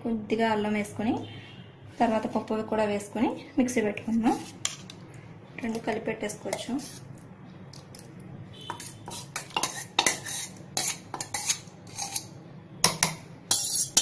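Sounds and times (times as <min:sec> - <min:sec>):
spoon scraping steel bowls: 0:04.3 - 0:05.0, 0:05.6 - 0:07.2, 0:08.6 - 0:14.0.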